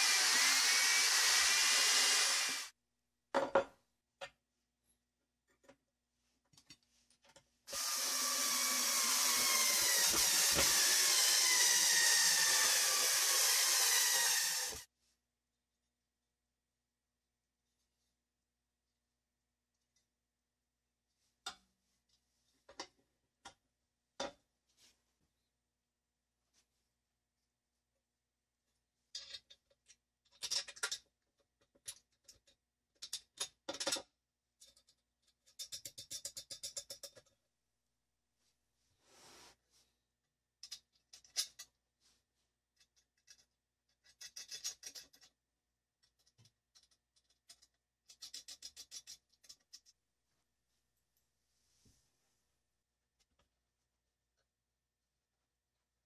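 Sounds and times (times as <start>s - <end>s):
power drill driving screws: 0.0s - 2.7s, 7.7s - 14.8s
small metal clicks and rattles: 29.1s - 37.4s, 40.6s - 41.8s, 42.8s - 45.4s, 46.0s - 50.0s.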